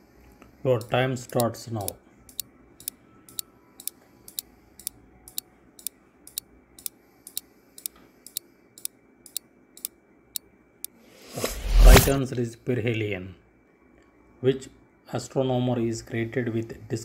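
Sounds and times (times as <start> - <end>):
clock ticking: 0.8 - 2.4.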